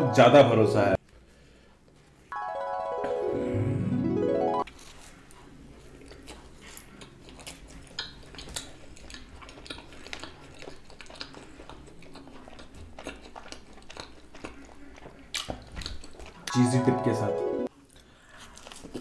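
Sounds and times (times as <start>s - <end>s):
person chewing food: 4.7s - 16.6s, 17.7s - 19.0s.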